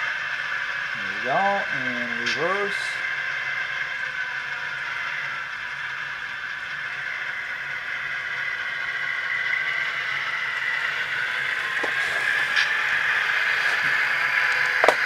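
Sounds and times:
diesel engine sound from small speaker: 0:00.0 - 0:15.0.

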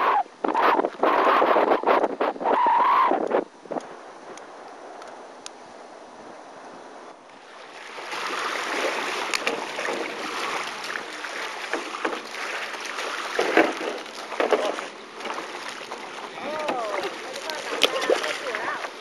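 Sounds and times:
wind on microphone: 0:00.0 - 0:07.2
small waves lapping on pebbles: 0:07.3 - 0:19.0.

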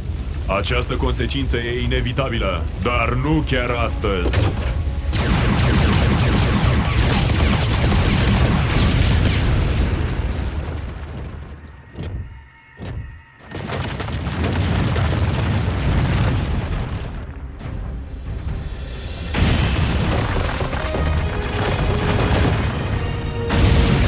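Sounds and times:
rumbling explosion blasts: 0:00.0 - 0:24.0
background music: 0:00.5 - 0:09.6, 0:17.0 - 0:24.0
crashing rock: 0:12.8 - 0:17.4, 0:19.3 - 0:24.0.

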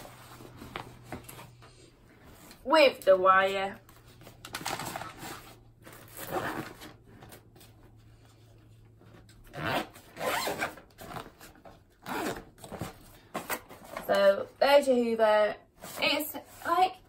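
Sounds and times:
cable being handled: 0:03.8 - 0:09.4
zip being pulled: 0:06.1 - 0:06.8, 0:09.5 - 0:10.8, 0:12.0 - 0:12.5.

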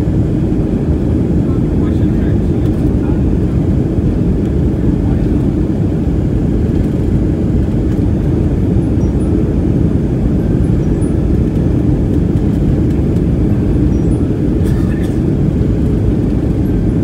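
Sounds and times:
airplane cabin rumble: 0:00.0 - 0:17.0.

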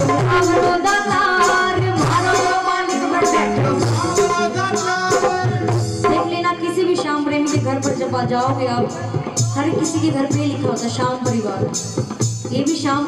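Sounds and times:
keyboard melody notes: 0:00.0 - 0:09.3
hand percussion: 0:00.0 - 0:13.0
steady drum beat: 0:00.0 - 0:13.0.

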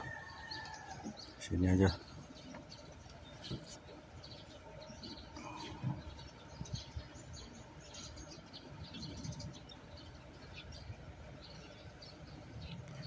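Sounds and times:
faint birds chirping: 0:00.0 - 0:13.0.

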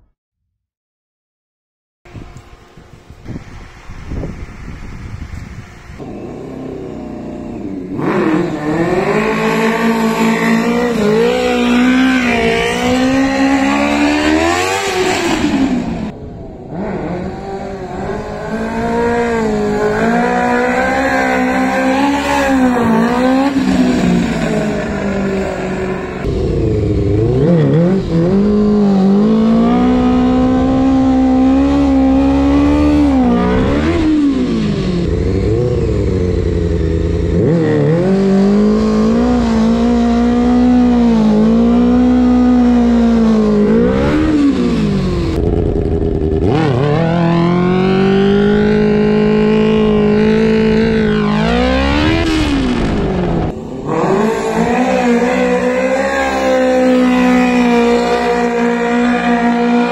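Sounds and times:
motorcycle engine revving: 0:02.1 - 0:59.9.

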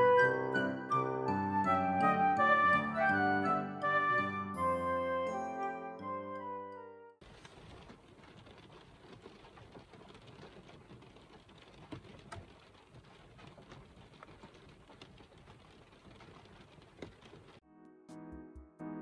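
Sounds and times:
light rain on glass: 0:07.2 - 0:17.6.

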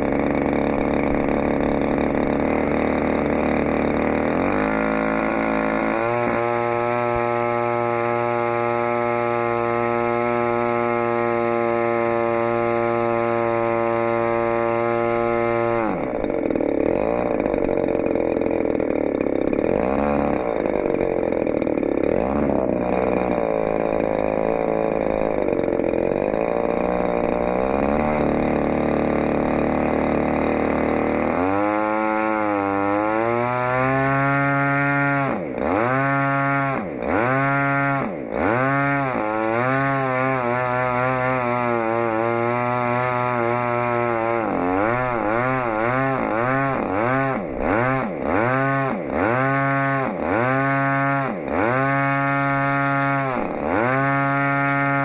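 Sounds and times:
model aircraft engine running: 0:00.0 - 0:55.0.

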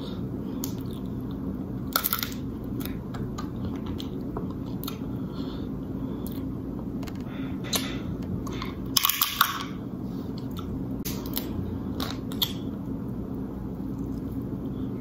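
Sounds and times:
low background hum: 0:00.0 - 0:15.0
crab shells cracking: 0:01.9 - 0:02.4.

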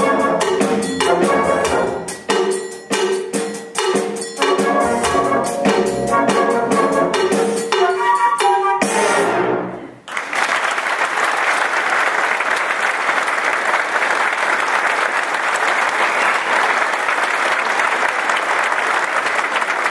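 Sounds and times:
band chord: 0:00.0 - 0:02.6, 0:04.4 - 0:07.6
audience applause: 0:10.0 - 0:19.9.

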